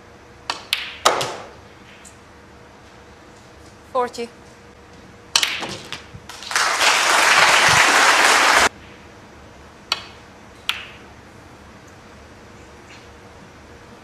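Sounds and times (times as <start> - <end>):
audience applauding: 6.3 - 8.7.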